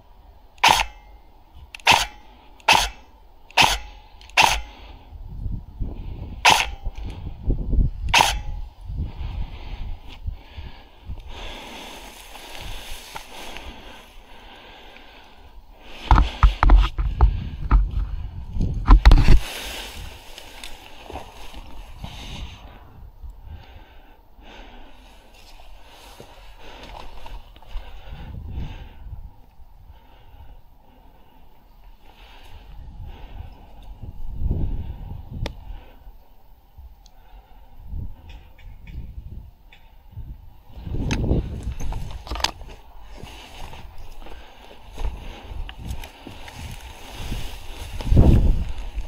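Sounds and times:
rustling of grass and clothing: 0:00.0 - 0:49.0
airsoft rifle shots: 0:00.6 - 0:01.1, 0:01.8 - 0:04.8, 0:06.4 - 0:07.0, 0:08.1 - 0:08.6.

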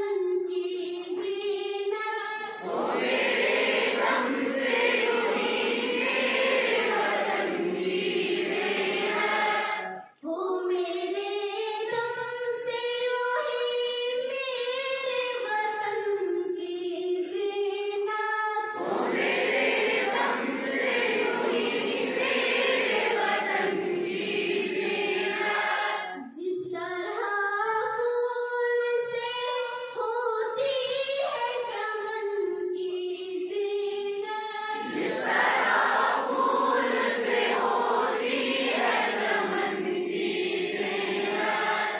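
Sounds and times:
girls singing together: 0:02.4 - 0:10.3, 0:18.7 - 0:26.7, 0:34.8 - 0:41.9.

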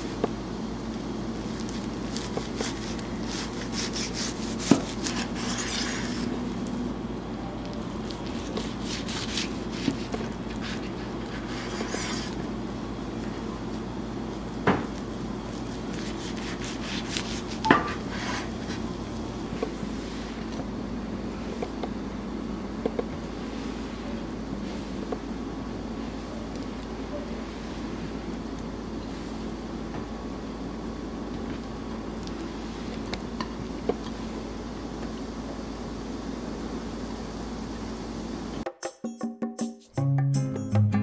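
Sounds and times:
knife slicing through rolls: 0:01.4 - 0:06.4, 0:08.0 - 0:12.5, 0:15.4 - 0:18.9.

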